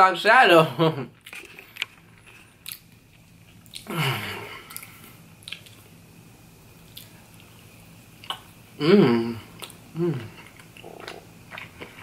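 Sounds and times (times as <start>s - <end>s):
man humming: 3.9s - 4.7s, 8.8s - 11.1s.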